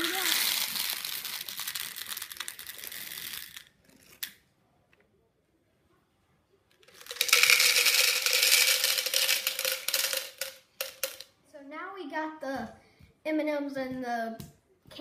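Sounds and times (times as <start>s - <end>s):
candies pouring into cup: 0.0s - 4.4s, 6.8s - 11.2s
candies rattling into plastic cup: 0.0s - 4.4s, 6.8s - 11.3s.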